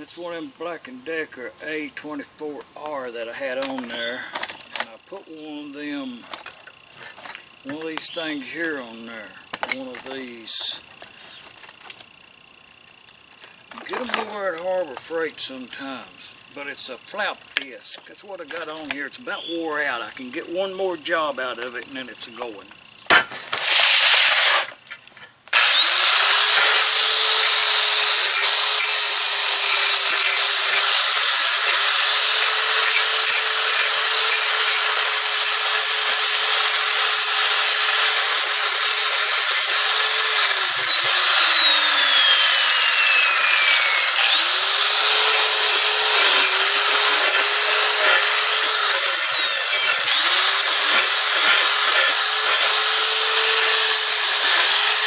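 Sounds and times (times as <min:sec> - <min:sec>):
angle grinder grinding steel: 0:13.8 - 0:55.0.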